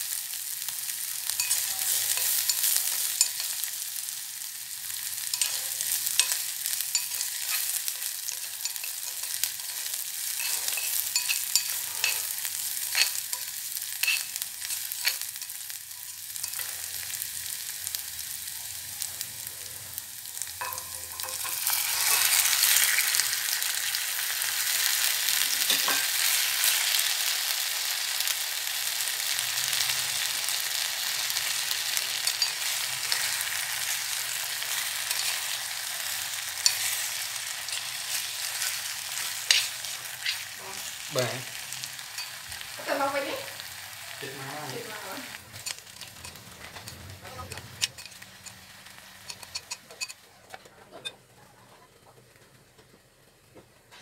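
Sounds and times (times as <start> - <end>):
food sizzling in oil: 0.0 - 50.2
utensil scraping a pot: 5.1 - 17.1, 31.4 - 41.1.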